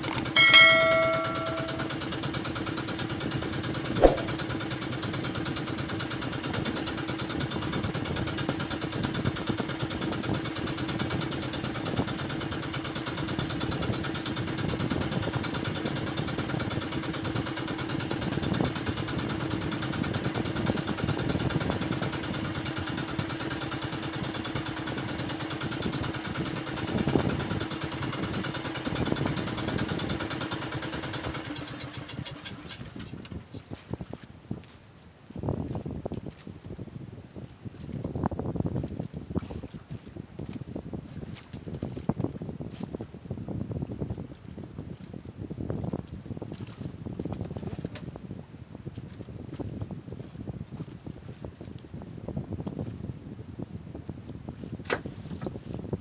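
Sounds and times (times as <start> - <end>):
sharp click: 4.0 - 4.4.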